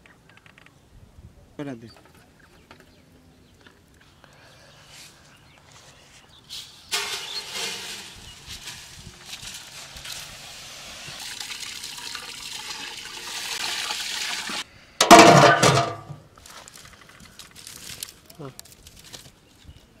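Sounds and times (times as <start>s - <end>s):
water pouring into metal pot: 7.0s - 14.6s.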